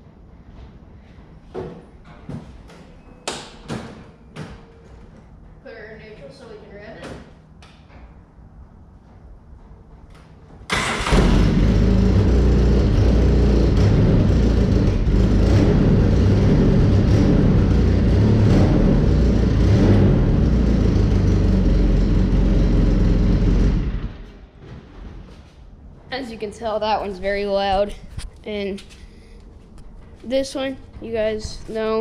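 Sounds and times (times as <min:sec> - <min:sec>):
engine starting and running: 0:10.1 - 0:25.6.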